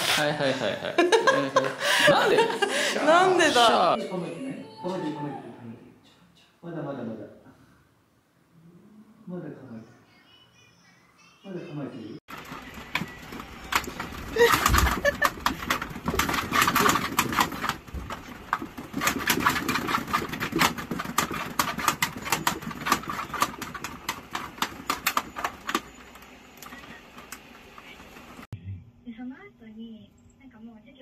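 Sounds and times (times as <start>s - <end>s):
cat exercise wheel clattering: 12.3s - 26.2s.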